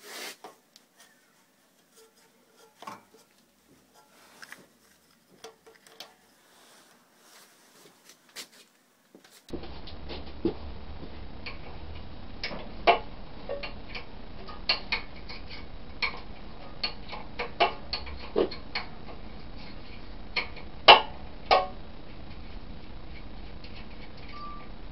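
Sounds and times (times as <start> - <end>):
steady low hum: 9.5 - 24.9.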